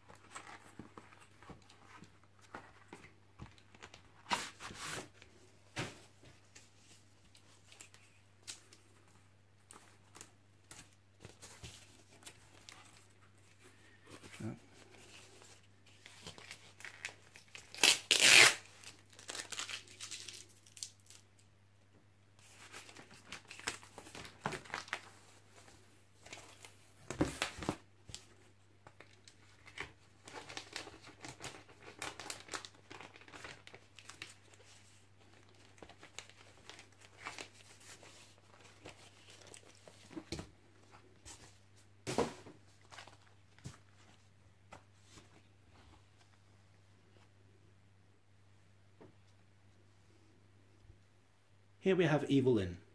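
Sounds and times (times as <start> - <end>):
cardboard and plastic rustling: 0.0 - 21.2, 22.4 - 46.4
packing tape tearing: 16.8 - 21.2.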